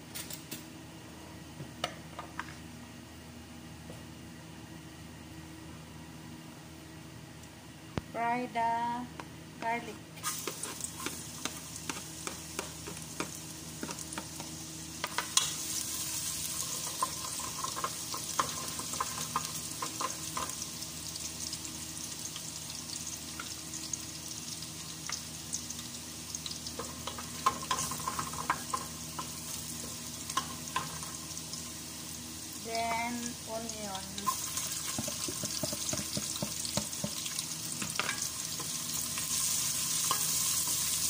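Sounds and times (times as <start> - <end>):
garlic sizzling in hot oil: 10.2 - 41.0.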